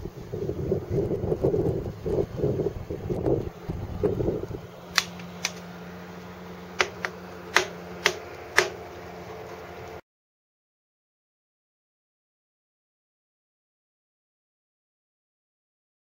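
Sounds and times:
wind buffeting microphone: 0.0 - 4.8
steady low hum: 0.0 - 10.0
sharp clicks: 4.9 - 5.7, 6.8 - 8.8.

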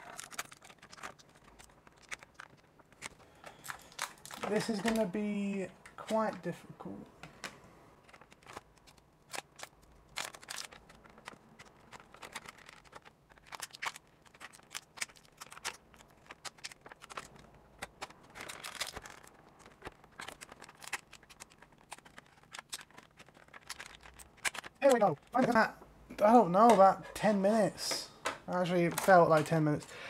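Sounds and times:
plastic packaging clicks: 0.0 - 6.5, 7.2 - 25.7, 27.9 - 29.8
plastic packaging crinkling: 0.0 - 6.5, 8.0 - 30.0
scissors snipping plastic: 28.6 - 29.6.

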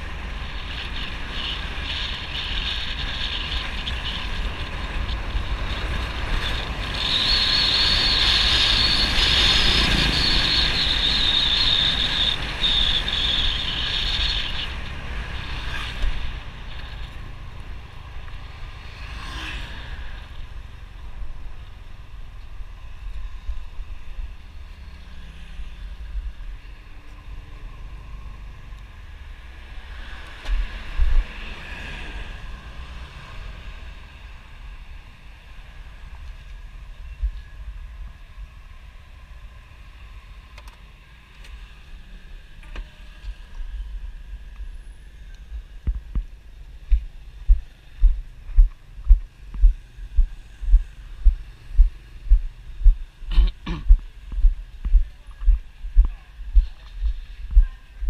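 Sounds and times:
wind rushing over microphone: 25.6 - 32.7, 43.7 - 58.0.

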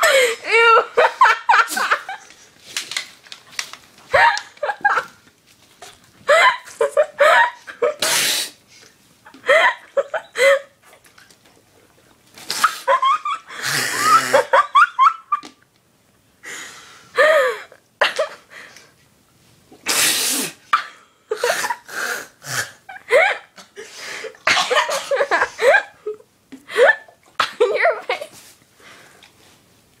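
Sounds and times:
laughter: 0.0 - 2.3, 4.1 - 5.2, 12.8 - 15.6, 24.7 - 26.2
girl coughing and spluttering: 24.4 - 25.5, 26.9 - 28.3.

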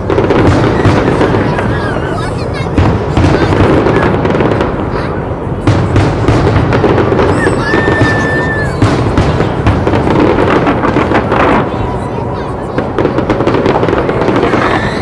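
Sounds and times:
fireworks bursting and crackling: 0.0 - 15.0
high whistle: 7.3 - 8.8.

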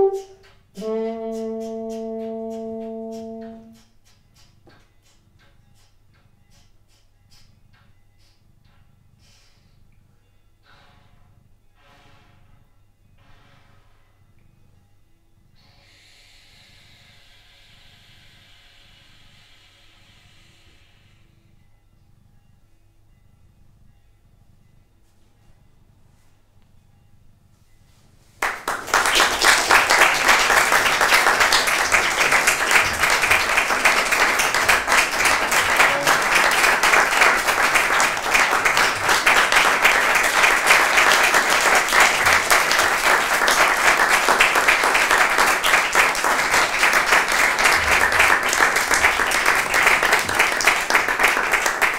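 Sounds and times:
audience applause: 28.4 - 51.9.

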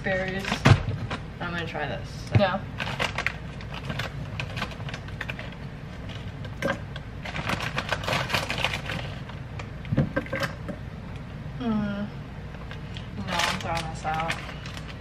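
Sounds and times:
plastic bag crinkling: 2.8 - 9.4, 12.9 - 15.0
berries rattling into blender: 2.8 - 10.7.

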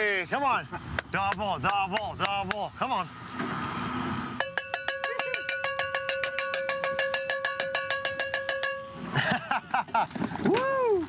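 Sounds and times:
cowbell clanging rapidly: 4.4 - 9.2.

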